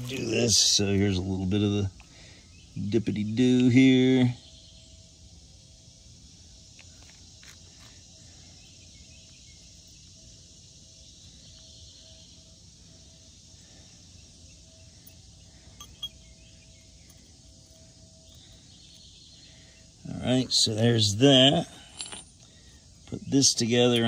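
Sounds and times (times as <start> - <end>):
steady high hiss: 0.0 - 24.0
faint repeating tone: 14.7 - 16.4.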